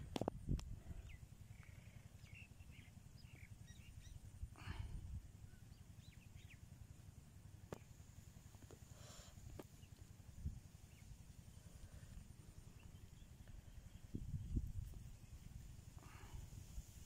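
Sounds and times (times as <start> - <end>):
low outdoor rumble: 0.0 - 17.0
small birds chirping: 0.1 - 6.8, 7.6 - 16.6.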